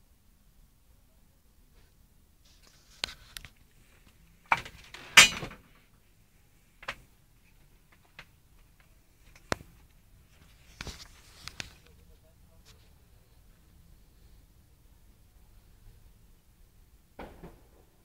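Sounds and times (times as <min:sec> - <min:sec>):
camera handling rustle: 0:10.4 - 0:11.9.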